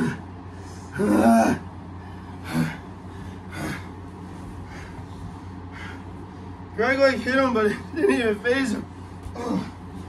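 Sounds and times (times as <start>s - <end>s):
man groaning with strain: 0.9s - 1.7s, 9.3s - 9.8s.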